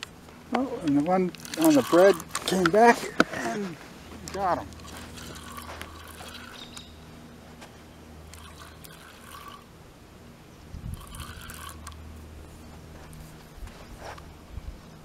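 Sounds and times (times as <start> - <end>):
low steady hum: 0.0 - 15.0
fishing reel clicking and whirring: 0.8 - 2.9, 4.3 - 6.9, 8.3 - 9.7, 10.9 - 12.0.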